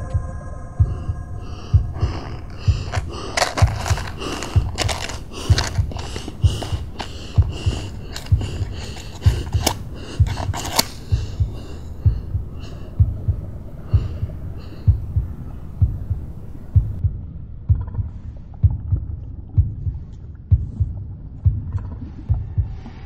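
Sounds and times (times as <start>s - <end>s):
heartbeat thumps: 0.0s - 23.0s
sharp clicks: 1.9s - 12.8s.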